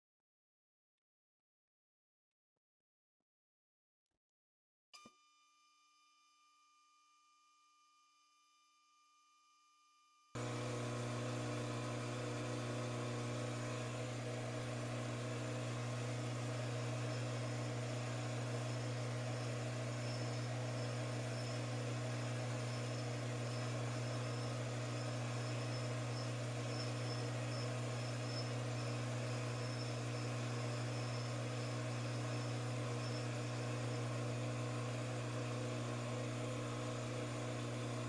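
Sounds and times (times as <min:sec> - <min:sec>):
faint high whine: 0:09.2 - 0:38.0
lathe machine hum: 0:10.4 - 0:38.0.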